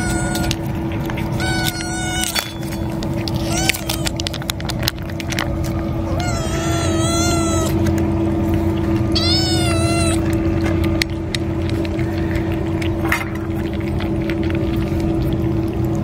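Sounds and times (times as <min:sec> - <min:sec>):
cat meowing: 0:00.0 - 0:00.6, 0:01.3 - 0:02.7, 0:03.4 - 0:04.2, 0:06.0 - 0:07.8, 0:09.1 - 0:10.3
steady low hum: 0:00.0 - 0:16.0.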